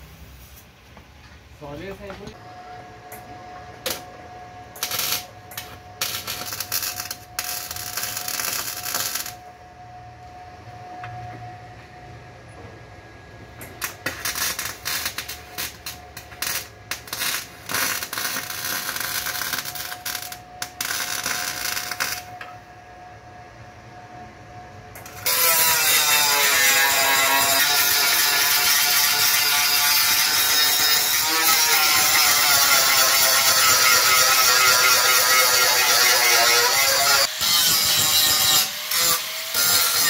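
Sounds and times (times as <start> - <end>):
welder crackling and sputtering: 4.8 - 9.4, 13.8 - 22.4, 25.0 - 40.0.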